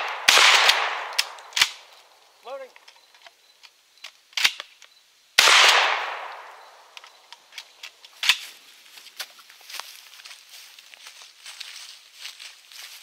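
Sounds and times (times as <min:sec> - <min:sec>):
shotgun blast: 0:00.0 - 0:01.8, 0:05.4 - 0:06.6
gun action clicks: 0:00.6 - 0:01.8.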